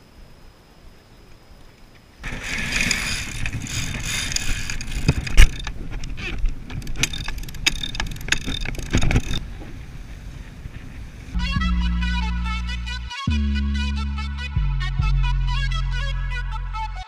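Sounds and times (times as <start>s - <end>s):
winch clicking and knocking: 2.6s - 9.4s.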